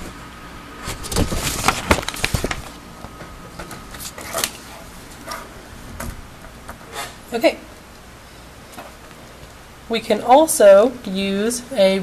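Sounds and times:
paper rustling and crackling: 0.8 - 2.8, 3.6 - 5.4.

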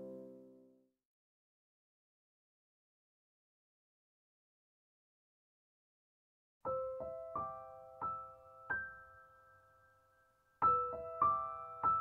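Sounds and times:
slow gentle piano notes: 0.0 - 0.8, 6.6 - 12.0.

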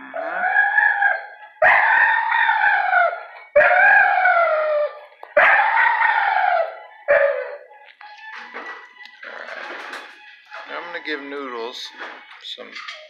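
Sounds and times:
dog howling: 0.0 - 7.8.

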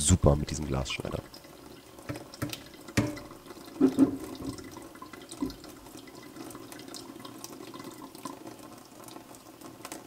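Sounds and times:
water pouring over glass bottle: 1.1 - 9.2
sharp knocks: 2.1 - 3.2.

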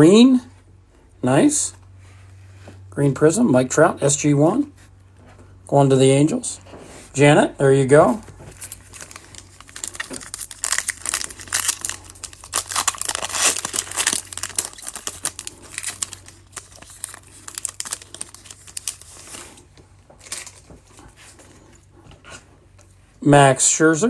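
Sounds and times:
foil card pack tearing: 8.5 - 19.6
wrapper crinkling: 8.5 - 21.4.

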